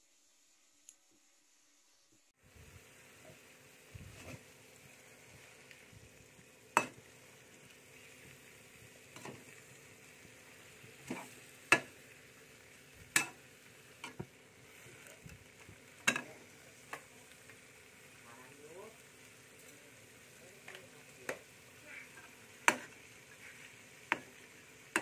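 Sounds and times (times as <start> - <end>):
faint sizzle: 0.0 - 25.0
metal spatula scraping frying pan: 11.0 - 11.9.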